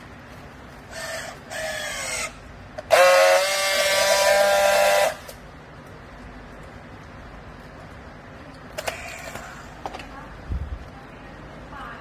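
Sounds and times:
strapping tool whining: 0.9s - 5.4s.

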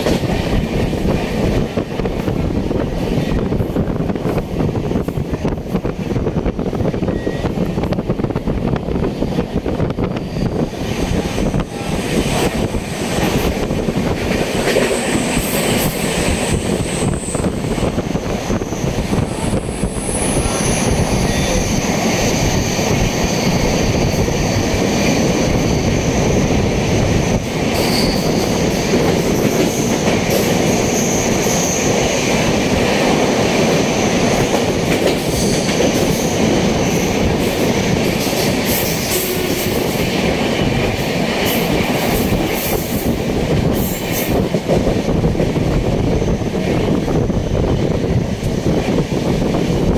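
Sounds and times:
train rumble: 0.0s - 49.9s
wheel squeal: 27.8s - 28.6s.

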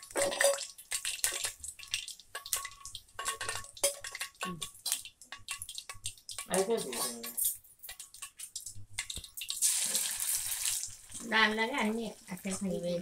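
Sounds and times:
metal ladle clinking on pan: 0.0s - 0.7s, 2.4s - 5.6s
hot oil sizzling and popping: 0.0s - 13.0s.

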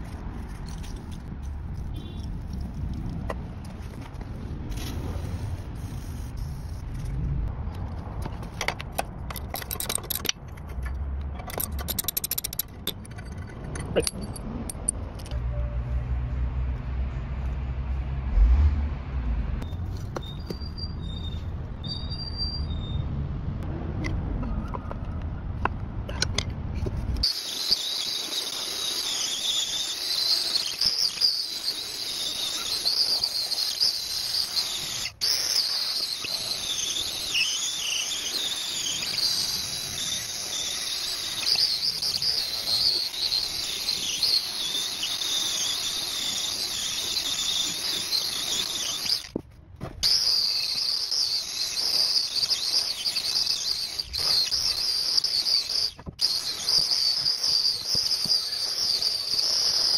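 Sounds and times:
angle grinder grinding metal: 27.2s - 49.4s.

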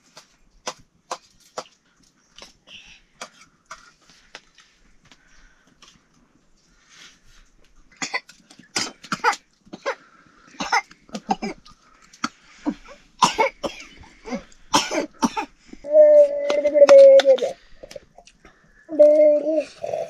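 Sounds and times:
person coughing: 10.6s - 11.6s, 12.7s - 15.6s.

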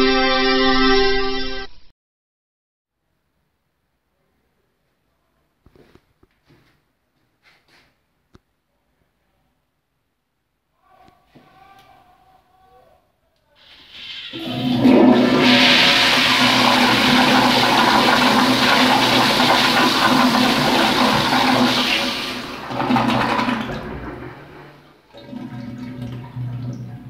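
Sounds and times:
toilet flushing: 13.6s - 27.0s
toilet bowl refilling: 13.9s - 27.0s.

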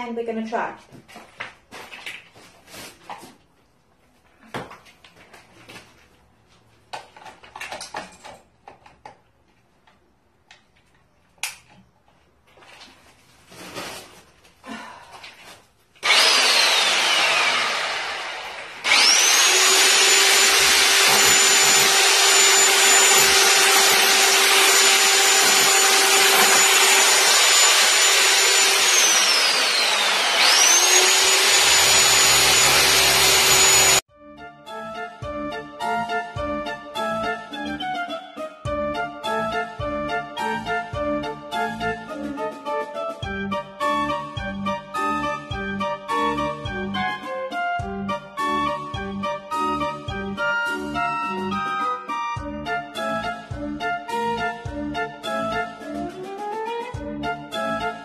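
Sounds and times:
hammer drill on tile adhesive: 16.0s - 34.1s.

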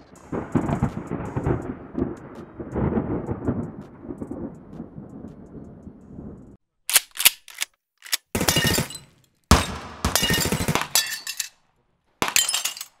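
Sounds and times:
automatic gunfire bursts: 8.3s - 11.0s
single gunshots: 8.4s - 11.0s
glass shattering: 8.4s - 11.6s, 12.2s - 13.0s.

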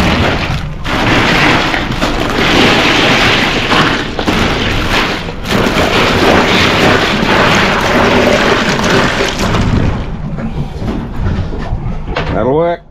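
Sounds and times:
plastic bags rustling: 0.0s - 9.8s
ice cubes crunching and rattling: 0.0s - 10.1s.

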